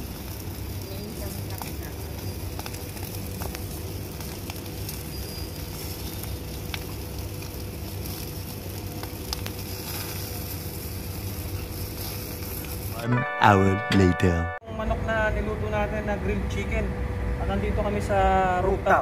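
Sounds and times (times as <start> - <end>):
chicken sizzling on fire: 0.0 - 13.0
fire crackling and popping: 0.0 - 13.0.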